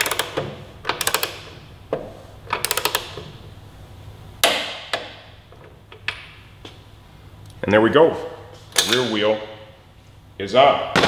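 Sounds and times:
torque wrench ratchet clicks: 2.5 - 3.2.

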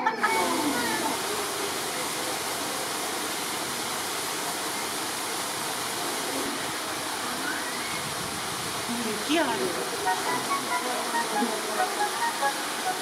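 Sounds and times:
steady rushing noise: 7.8 - 13.0.

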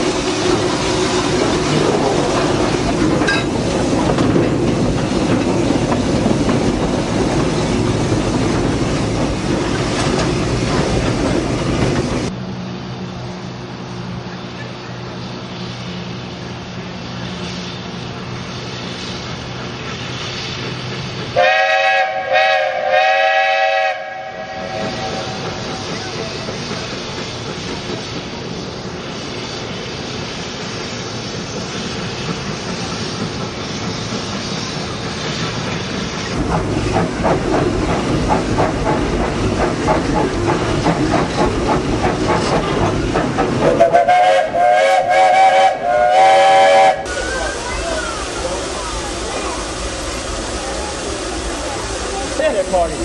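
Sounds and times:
steam locomotive chuffing: 0.0 - 12.4, 13.6 - 53.0
steam locomotive whistle blasts: 21.4 - 25.6, 43.7 - 47.4.

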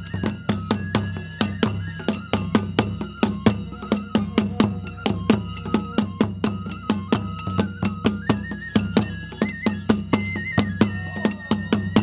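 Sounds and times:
bamboo flute melody: 0.0 - 12.0
taiko drums beating: 0.0 - 12.0.

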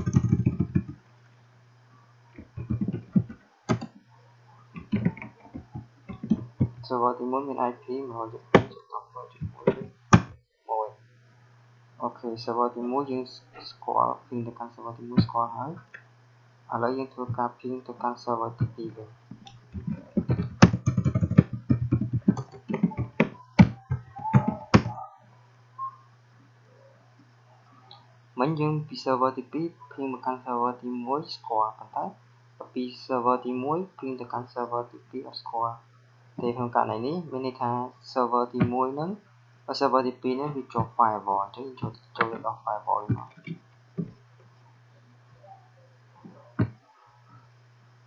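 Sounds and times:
computer keyboard typing: 0.0 - 1.0, 2.4 - 4.0, 4.8 - 6.8, 19.4 - 25.0
keyboard key clicks: 0.0 - 1.0, 2.4 - 4.0, 4.8 - 6.8
steady low hum: 0.0 - 48.0.

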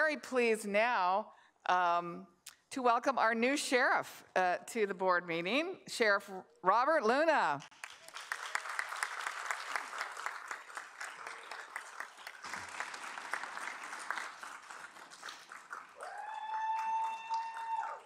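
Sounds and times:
audience applauding: 7.7 - 18.0.

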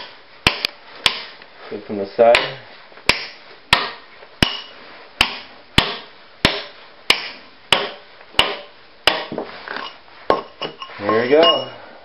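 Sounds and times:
sledgehammer striking steel chisel: 2.3 - 11.8.

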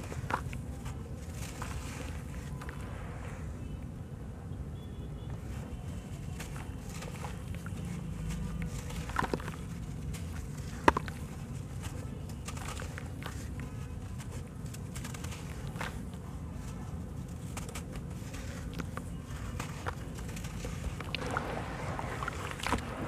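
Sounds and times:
crumbs dropping into water: 20.2 - 23.0.

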